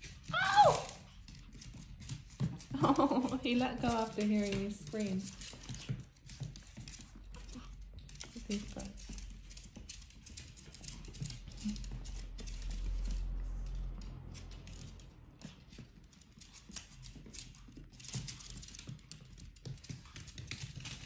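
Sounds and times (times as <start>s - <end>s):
puppy claws clicking on wooden floor: 0.0s - 21.0s
low rumble: 11.6s - 15.6s.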